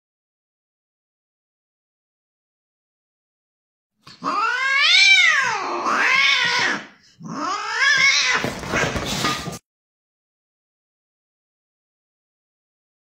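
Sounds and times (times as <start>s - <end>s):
cat yowling: 4.2s - 8.8s.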